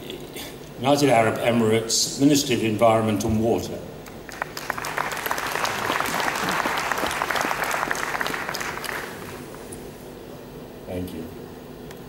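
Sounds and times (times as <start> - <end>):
audience applauding: 4.1 - 9.7.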